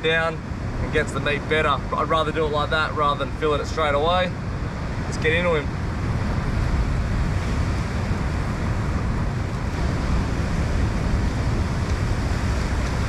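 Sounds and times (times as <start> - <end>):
ocean swell breaking on rocks: 0.0 - 13.0
wind buffeting microphone: 0.0 - 13.0.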